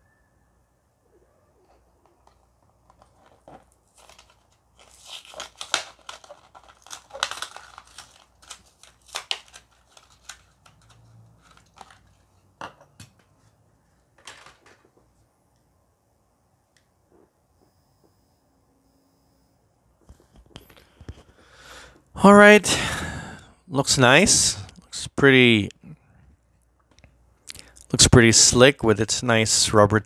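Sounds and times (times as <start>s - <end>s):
plastic blister pack crackling: 2.1s - 12.3s.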